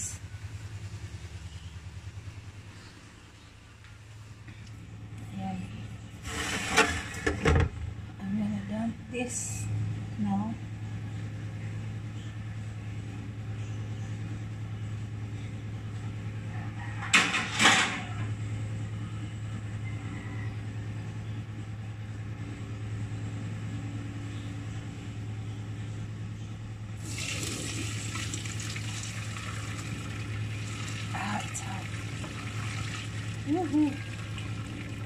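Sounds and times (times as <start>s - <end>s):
steady low hum: 0.0s - 35.0s
water pouring into a colander: 27.0s - 35.0s.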